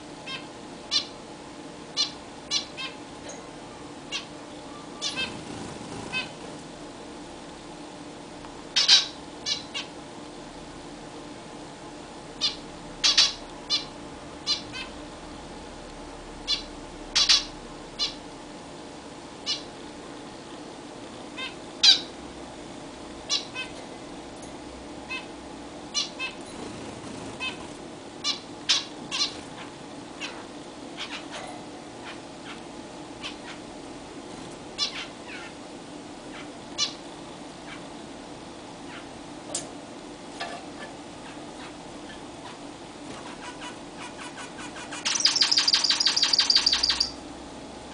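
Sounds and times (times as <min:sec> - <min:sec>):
faint steady hum: 0:00.0 - 0:47.9
finches calling: 0:04.1 - 0:06.4, 0:08.8 - 0:09.9, 0:12.4 - 0:13.9, 0:14.5 - 0:14.9, 0:16.5 - 0:18.2, 0:44.8 - 0:47.2.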